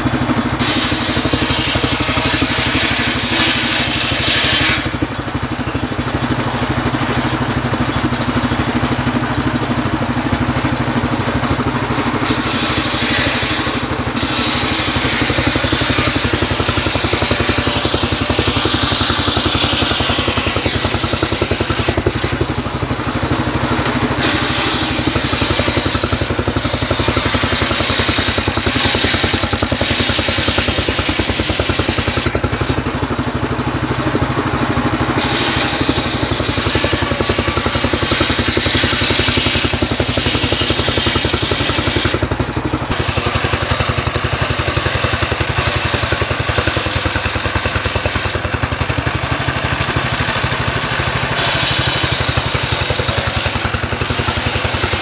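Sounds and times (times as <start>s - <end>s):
diesel engine chugging: 0.0s - 55.0s
circular saw ripping log: 0.6s - 5.1s, 12.2s - 22.7s, 23.8s - 32.8s, 35.2s - 49.9s, 51.4s - 55.0s.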